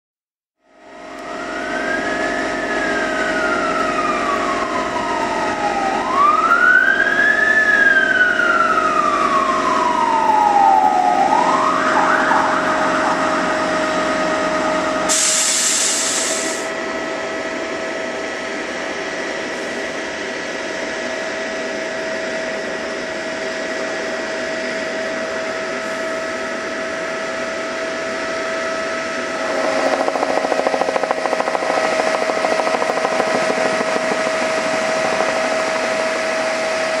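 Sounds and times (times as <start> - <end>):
siren wailing: 0.7 - 15.7, 21.4 - 37.0
steady high whine: 0.7 - 37.0
short burst of hiss: 15.1 - 16.7.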